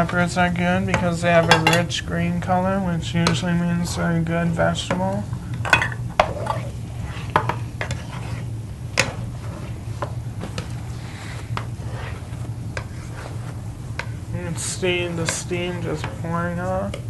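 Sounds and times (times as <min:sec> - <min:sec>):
spatula scraping in a skillet: 0:06.2 - 0:16.2.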